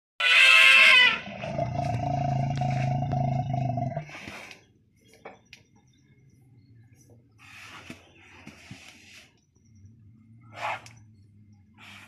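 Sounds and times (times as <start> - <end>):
elephant trumpeting: 0.2 - 3.0.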